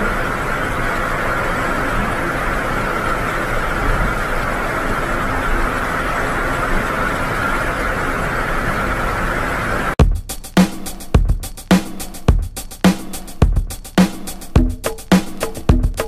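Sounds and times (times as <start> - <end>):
water churning in ship's wake: 0.0 - 10.0
low engine rumble: 0.0 - 10.3, 13.3 - 16.0.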